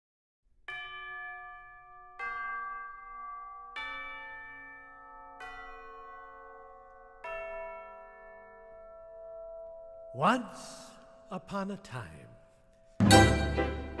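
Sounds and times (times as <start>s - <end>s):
bell-like chimes melody: 0.7s - 10.4s.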